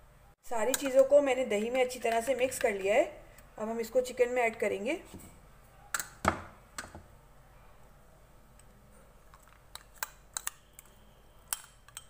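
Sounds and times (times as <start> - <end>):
spoon clicking against glass bowl: 11.5 - 12.0.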